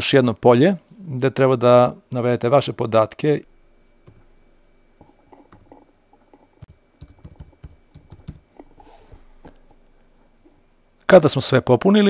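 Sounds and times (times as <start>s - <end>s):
keyboard typing: 4.0s - 4.3s, 5.2s - 8.7s.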